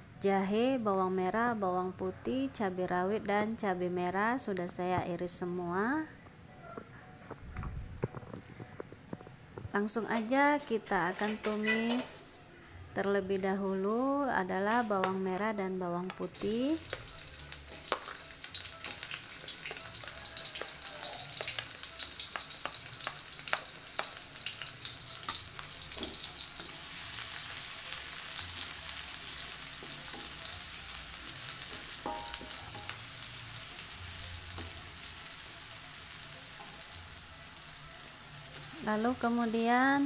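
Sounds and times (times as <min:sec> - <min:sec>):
food frying sizzle in oil: 0:13.9 - 0:40.0.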